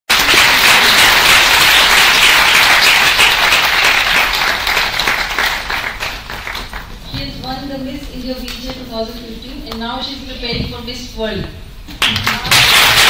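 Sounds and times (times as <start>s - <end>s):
audience applauding: 0.1s - 7.0s, 12.0s - 13.0s.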